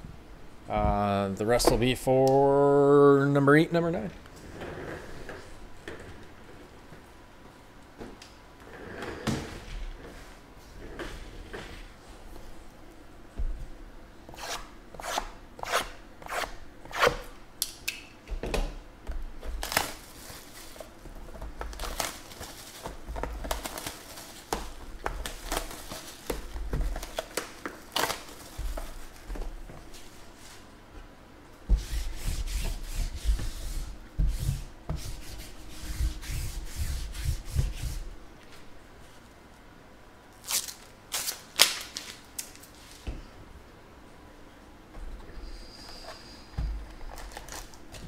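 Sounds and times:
shrink-wrap plastic crinkling and tearing: 0:19.6 - 0:21.0, 0:21.6 - 0:24.5, 0:25.1 - 0:29.2, 0:40.4 - 0:42.8, 0:47.0 - 0:48.0.

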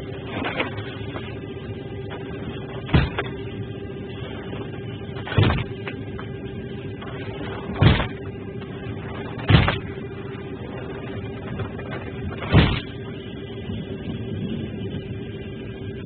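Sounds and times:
aircraft cabin hum: 0:00.0 - 0:16.0.

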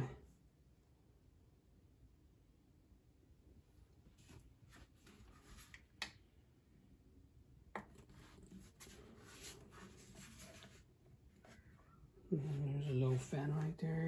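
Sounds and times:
plastic case handling and rubbing: 0:07.8 - 0:11.7.

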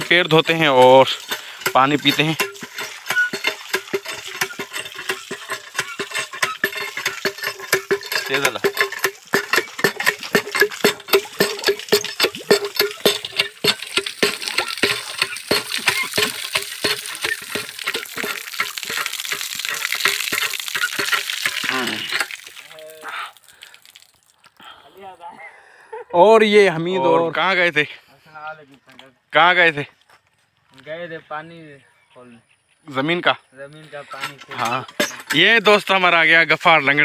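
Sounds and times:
hand pump clanking: 0:00.0 - 0:23.0, 0:34.0 - 0:37.0
water pouring from spout: 0:00.0 - 0:24.6.

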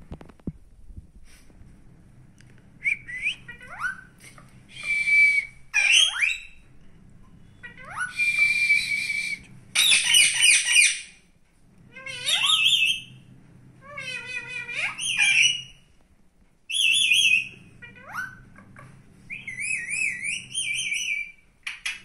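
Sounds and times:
parakeets calling: 0:05.7 - 0:06.6, 0:09.8 - 0:11.2, 0:11.9 - 0:13.1, 0:13.8 - 0:15.8.

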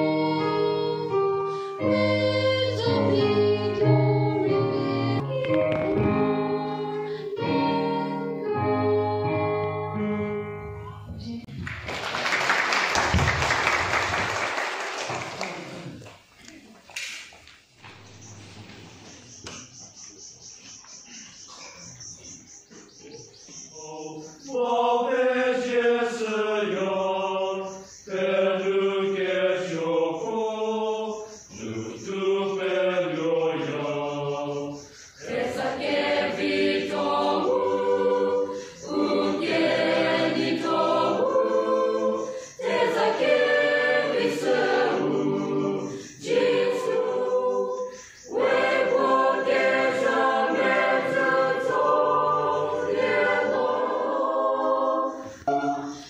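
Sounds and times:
choir singing a hymn: 0:00.0 - 0:10.8, 0:23.7 - 0:56.0.

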